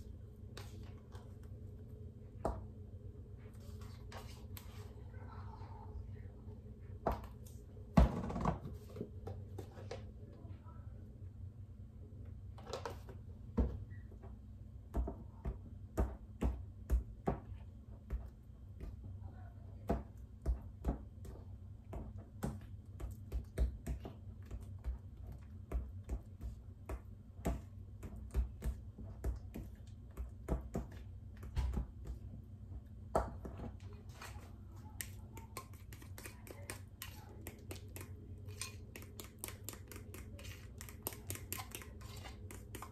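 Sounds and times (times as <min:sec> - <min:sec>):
steady low hum: 0:00.0 - 0:42.9
spoon scraping a glass bowl: 0:40.4 - 0:42.9.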